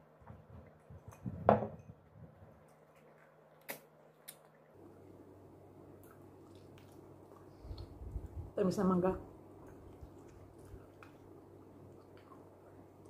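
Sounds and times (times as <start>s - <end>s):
lip and mouth clicks eating: 2.6s - 4.7s, 6.0s - 8.4s, 9.6s - 13.0s.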